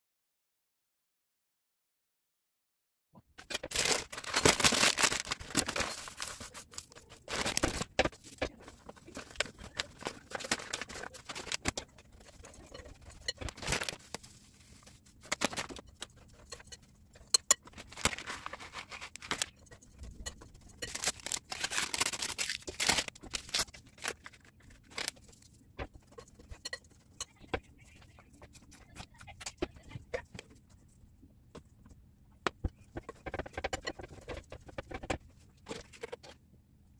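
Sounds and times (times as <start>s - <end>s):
dry rustling and scraping: 3.5s - 29.2s.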